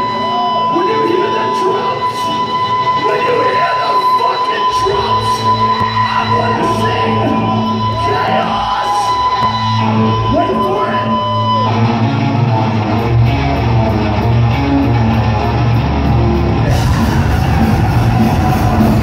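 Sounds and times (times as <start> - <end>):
punk band playing live: 0.0 - 19.0
people shouting: 16.6 - 19.0.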